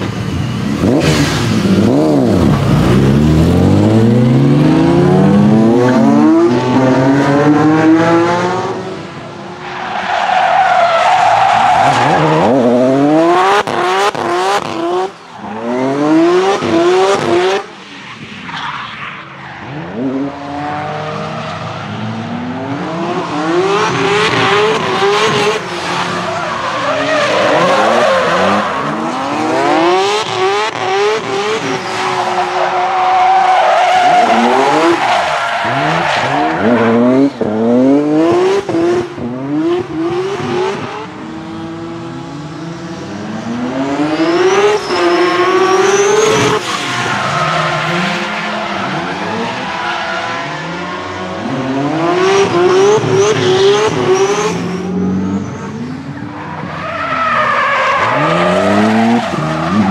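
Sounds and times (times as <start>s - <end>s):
car engine revving hard: 0.0s - 9.0s
tyres skidding and squealing: 0.0s - 41.4s, 42.5s - 59.9s.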